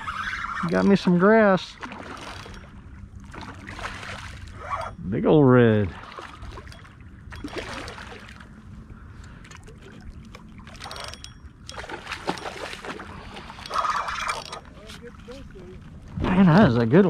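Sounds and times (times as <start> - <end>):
fish splashing in water: 1.7 - 4.7, 5.9 - 8.5, 11.7 - 14.6.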